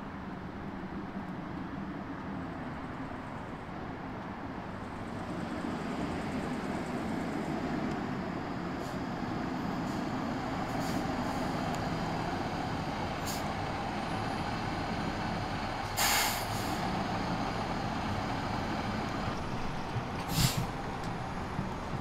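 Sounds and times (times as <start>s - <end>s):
diesel truck engine running: 4.7s - 22.0s
air brake hiss: 10.7s - 11.5s, 13.2s - 13.5s, 15.8s - 16.8s, 20.3s - 20.7s.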